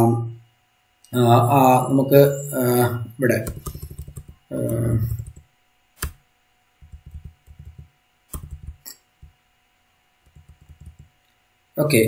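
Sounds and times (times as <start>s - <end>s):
computer mouse clicks: 3.4s - 5.4s, 6.0s - 6.2s, 6.8s - 9.0s, 10.2s - 11.1s.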